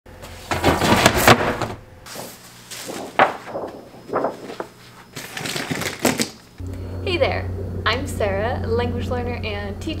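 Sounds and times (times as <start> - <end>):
books dropping into metal wastebasket: 0.2 - 6.4
paper slapping and rustling: 0.2 - 6.4.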